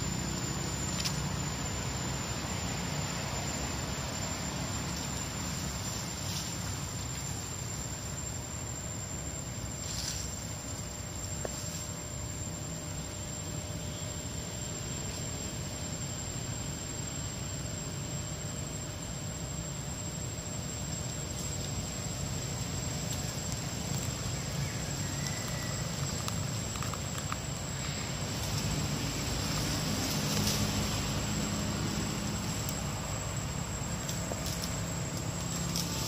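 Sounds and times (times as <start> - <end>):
steady hiss: 0.0 - 36.0
faint clicks and rustles: 20.9 - 28.8.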